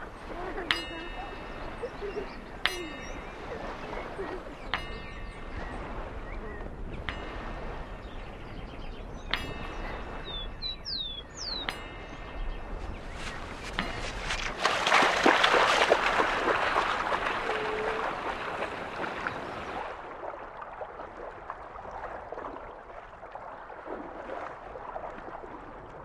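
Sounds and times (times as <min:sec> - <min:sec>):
metal strikes ringing: 0:00.0 - 0:14.6
bird chirps: 0:00.6 - 0:14.6.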